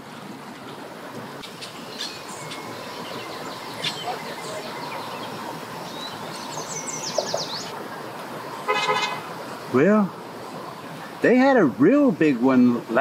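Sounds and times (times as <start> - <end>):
outdoor background noise: 0.0 - 13.0
bird chirping: 1.4 - 7.8.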